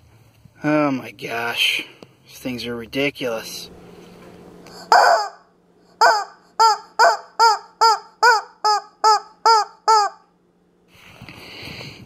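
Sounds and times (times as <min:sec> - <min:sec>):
rubber chicken squawking: 0:04.8 - 0:10.3.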